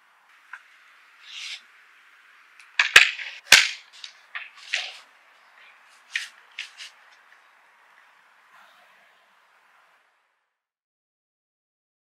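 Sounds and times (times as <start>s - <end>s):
folding wooden table clacking: 2.6s - 5.1s.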